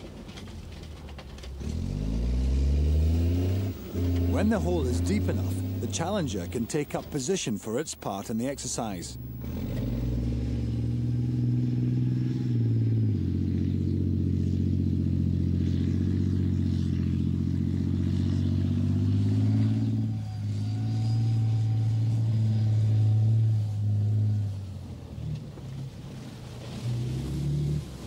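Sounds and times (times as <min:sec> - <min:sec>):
tank diesel engine running: 0:00.0 - 0:28.0.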